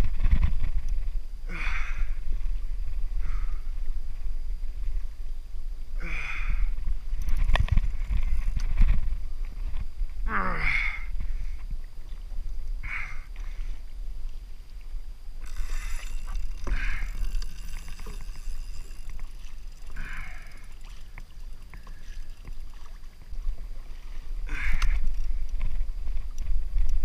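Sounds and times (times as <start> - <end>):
wind rumble on microphone: 0.0 - 27.0
water lapping against kayak hull: 11.0 - 27.0.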